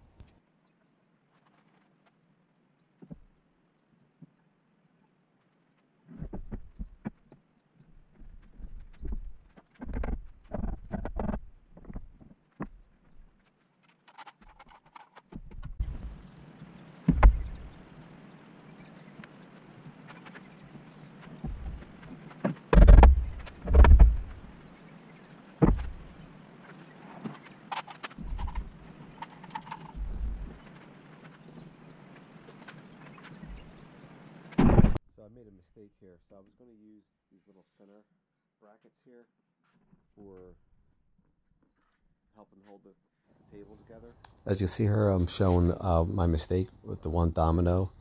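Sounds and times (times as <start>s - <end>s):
heavy thumps: 15.4s - 16.2s, 17.0s - 17.7s, 21.4s - 24.6s, 25.6s - 26.2s, 28.2s - 28.9s, 30.0s - 30.6s, 34.6s - 35.0s.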